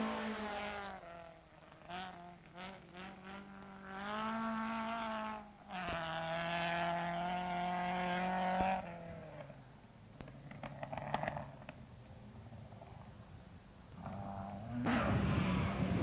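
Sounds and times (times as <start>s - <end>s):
racing car engine revving: 0.0s - 9.6s, 14.0s - 16.0s.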